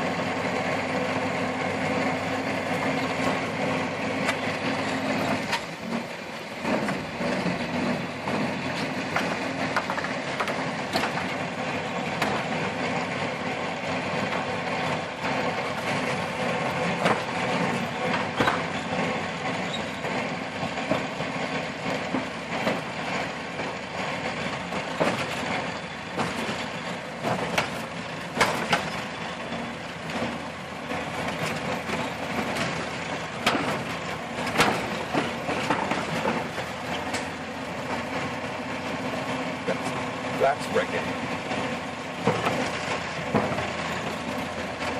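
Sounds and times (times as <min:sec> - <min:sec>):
old car engine running: 0:00.0 - 0:44.9.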